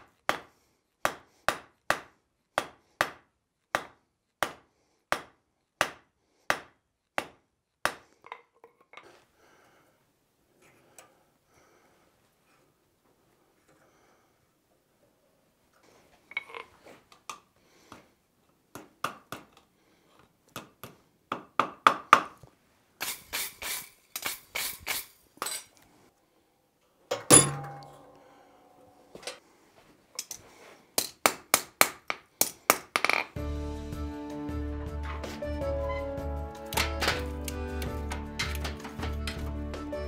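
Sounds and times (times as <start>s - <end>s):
hammer striking steel on anvil: 27.1s - 28.9s
loud ringing clang: 27.2s - 28.7s.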